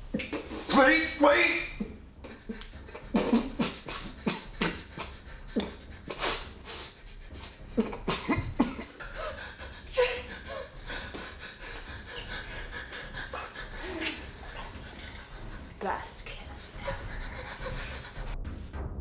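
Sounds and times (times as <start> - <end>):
man choking and coughing: 0.0 - 0.9, 1.7 - 6.6, 7.2 - 15.6.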